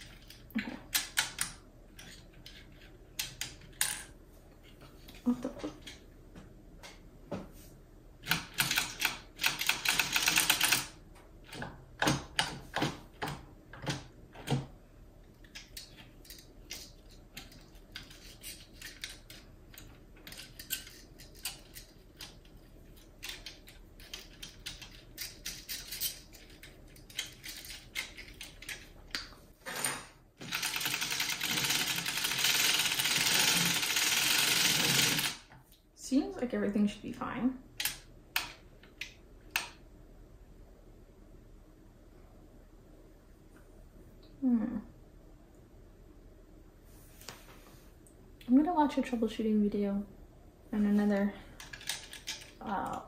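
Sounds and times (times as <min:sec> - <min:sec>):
knitting machine needles clicking rapidly: 0:08.3 - 0:11.0, 0:30.4 - 0:35.5.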